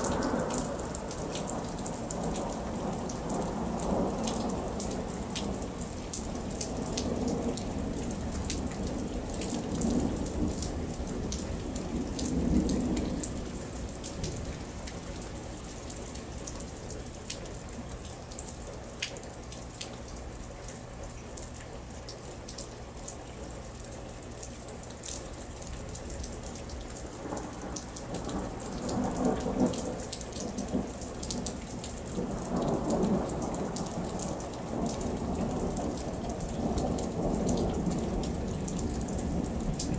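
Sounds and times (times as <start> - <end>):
thunder rumbling: 0.0 - 16.4, 27.1 - 39.9
raindrops ticking on surfaces: 0.0 - 39.9
steady rain: 0.0 - 39.9.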